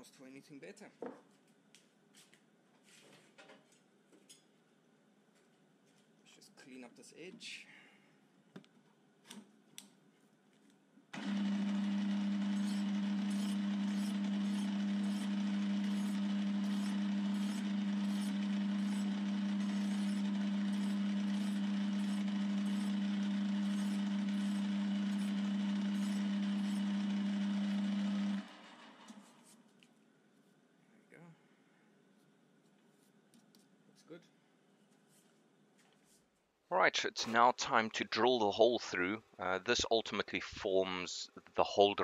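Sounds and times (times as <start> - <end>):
metal lathe humming: 11.2 - 29.4
file strokes on metal: 12.6 - 19.1, 19.7 - 22.9, 23.6 - 25.4.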